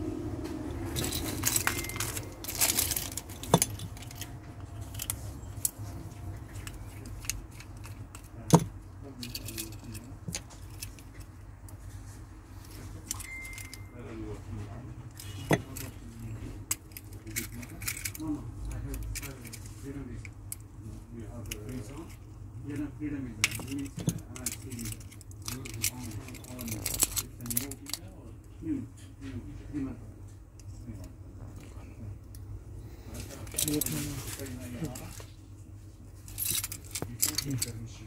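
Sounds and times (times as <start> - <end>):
keys jangling: 0.9 - 5.8, 13.0 - 13.9, 16.7 - 18.2, 36.3 - 37.8.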